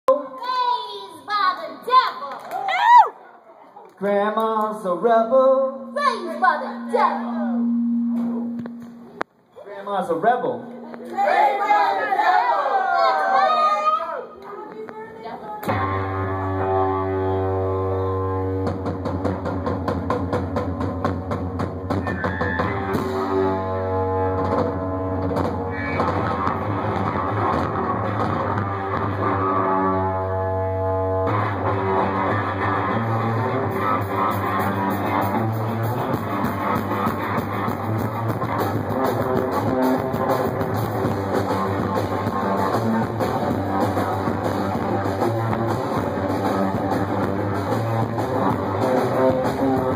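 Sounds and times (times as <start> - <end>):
electric guitar riffing: 5.6 - 9.2, 15.6 - 49.9
drum kit playing: 15.6 - 29.8, 31.1 - 49.9.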